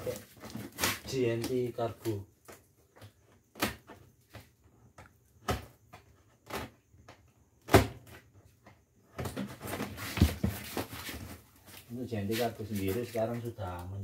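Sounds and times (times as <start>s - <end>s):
scraping and rustling of box: 9.3s - 13.2s.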